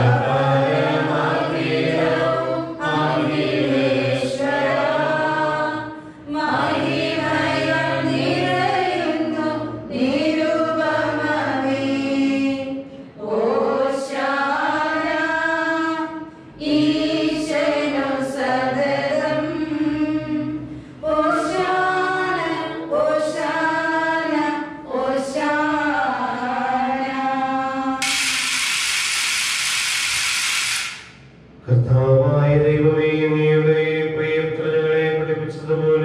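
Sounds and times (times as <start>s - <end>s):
voices singing a slow hymn: 0.0s - 28.0s.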